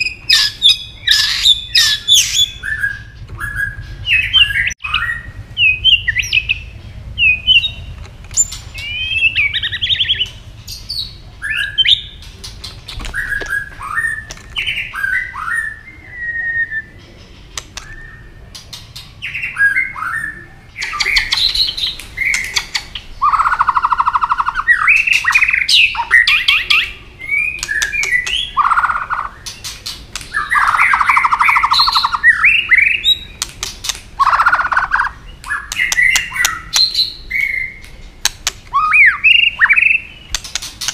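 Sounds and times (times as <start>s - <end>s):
bird singing whistled phrases: 0.0s - 7.8s, 8.4s - 10.3s, 13.1s - 17.0s, 17.8s - 18.4s, 19.2s - 29.4s, 30.3s - 33.4s, 34.2s - 37.8s, 38.7s - 40.4s
bird sharp clicking notes: 17.5s - 19.1s, 27.5s - 32.3s, 33.3s - 37.2s, 37.8s - 40.9s.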